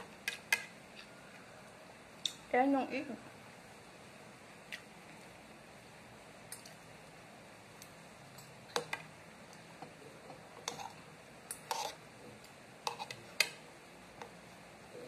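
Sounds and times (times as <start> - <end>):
cutlery clinking against bowl: 10.6 - 12.0, 12.9 - 13.6.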